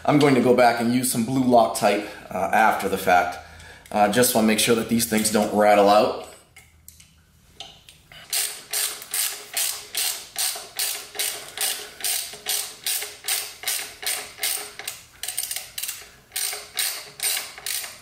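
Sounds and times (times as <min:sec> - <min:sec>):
hand ratchet clicking: 0:06.9 - 0:18.0.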